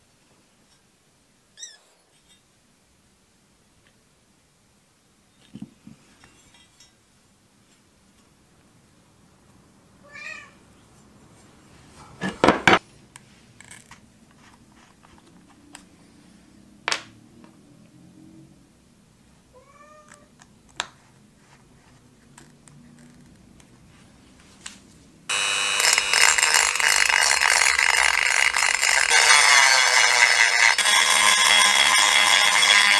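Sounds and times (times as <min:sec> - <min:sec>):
meow-like cries: 0:10.0 - 0:10.6, 0:19.5 - 0:20.3
rotary tool whining: 0:25.3 - 0:32.9.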